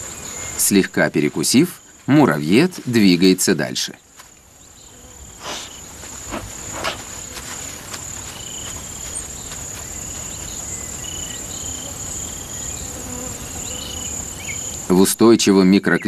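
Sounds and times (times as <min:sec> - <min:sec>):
insect chirps: 0:00.0 - 0:16.0
insects buzzing: 0:00.0 - 0:16.0
dry crackles: 0:00.6 - 0:11.5.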